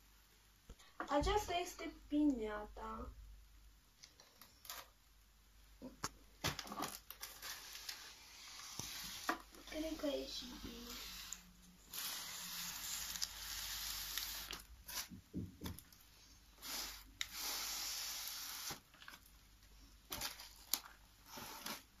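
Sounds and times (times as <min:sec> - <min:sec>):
crepe paper rustling: 0:06.4 - 0:15.2
paper crackles: 0:06.4 - 0:15.2.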